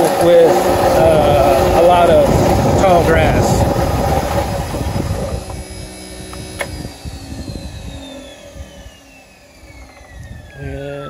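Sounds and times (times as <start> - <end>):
electric mower motor whine: 0.0 - 11.0
sharp click: 6.3 - 6.8.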